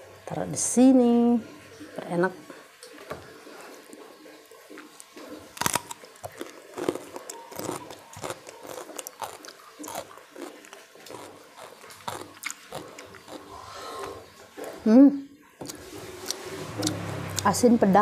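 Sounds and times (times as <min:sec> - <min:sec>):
person chewing crunchy food: 0:04.8 - 0:14.9, 0:15.6 - 0:17.5.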